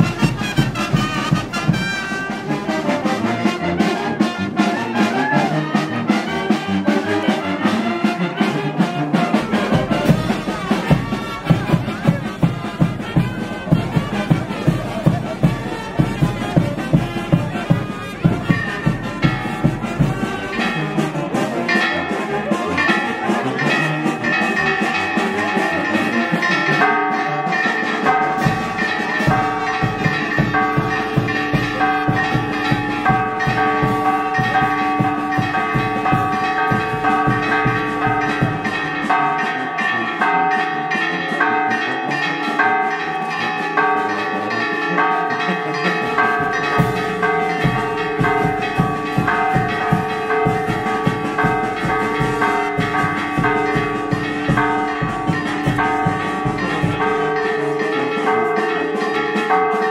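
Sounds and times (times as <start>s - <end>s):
church bells pealing: 0.0s - 59.9s.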